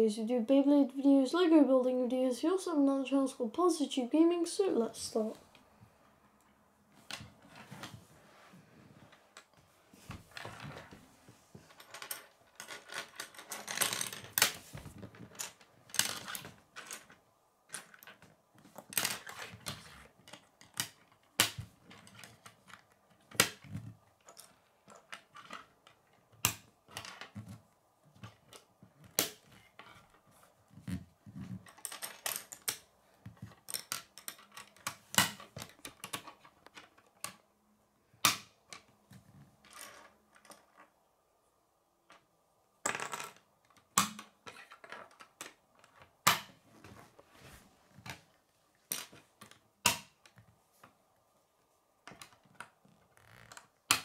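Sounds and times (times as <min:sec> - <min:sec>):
plastic pieces clicking together: 0:11.8 - 0:27.4, 0:31.6 - 0:37.4.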